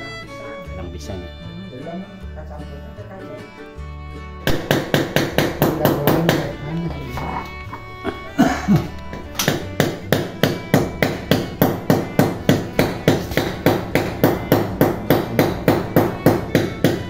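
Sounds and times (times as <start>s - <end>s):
hammer striking: 4.4s - 6.6s, 7.2s - 17.0s.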